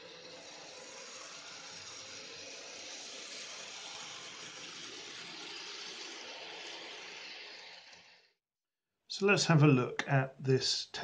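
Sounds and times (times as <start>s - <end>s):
model train whirring on track: 0.0s - 8.4s.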